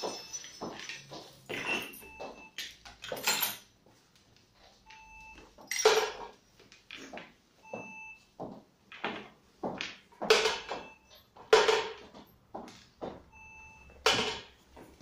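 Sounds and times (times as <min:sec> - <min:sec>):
plastic toys clattering: 0:00.0 - 0:02.0.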